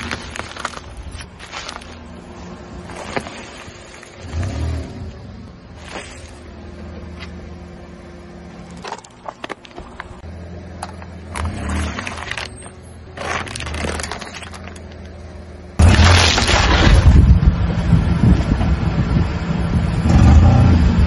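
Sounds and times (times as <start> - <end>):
tyre crushing plastic cups: 0.0 - 2.0, 13.1 - 15.0
sharp cracks: 15.8 - 17.2.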